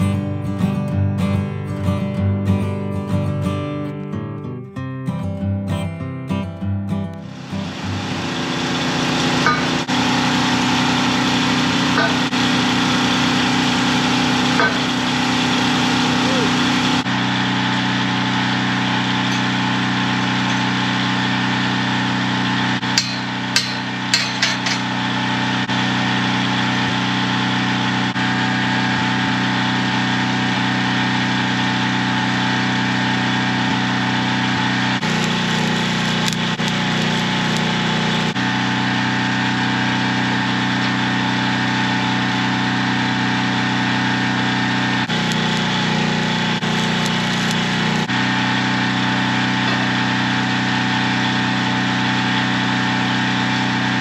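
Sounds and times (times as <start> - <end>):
engine-driven welder running: 7.1 - 54.0
sharp metal knocks: 9.4 - 9.9, 12.0 - 12.4, 14.6 - 15.1, 22.8 - 25.0.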